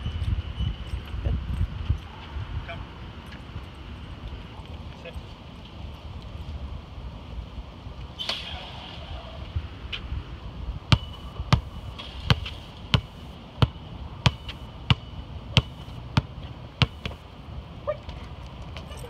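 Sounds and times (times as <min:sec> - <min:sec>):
basketball bouncing on concrete: 0:10.9 - 0:17.3.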